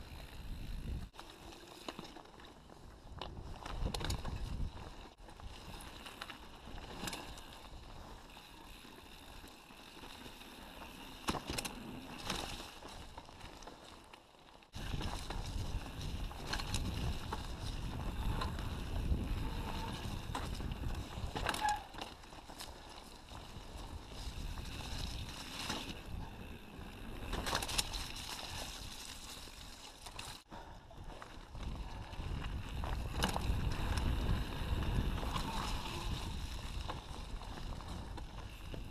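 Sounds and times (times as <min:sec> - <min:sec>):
bike rattling and knocking: 0:00.0 - 0:13.9, 0:14.8 - 0:30.4, 0:31.5 - 0:38.9
wind and tyres rumbling: 0:00.0 - 0:38.9.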